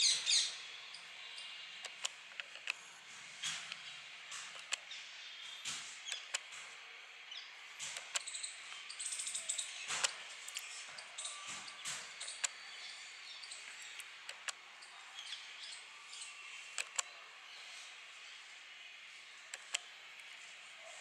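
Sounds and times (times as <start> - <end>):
woodpeckers tapping on cement: 5.6 - 6.7, 7.8 - 12.6.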